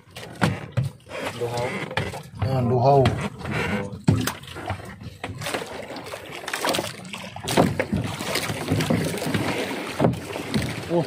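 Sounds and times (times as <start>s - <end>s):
water splashing and dripping: 0.0s - 11.0s.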